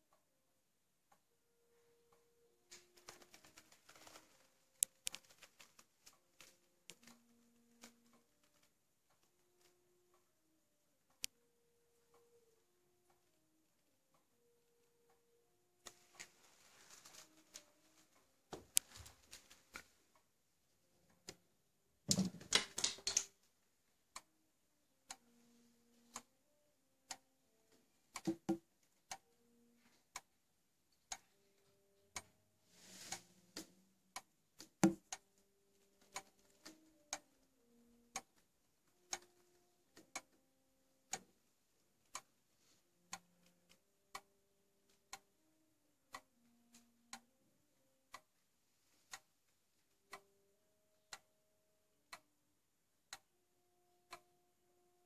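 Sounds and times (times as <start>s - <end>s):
pendulum clock ticking: 0.0s - 55.0s
clicks and rustling: 2.7s - 8.7s, 15.8s - 20.0s.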